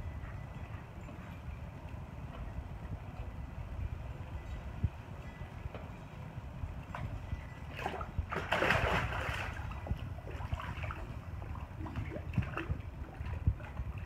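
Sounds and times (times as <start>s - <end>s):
water sloshing from paddling: 7.7s - 14.0s
dog splashing into water: 7.8s - 9.8s.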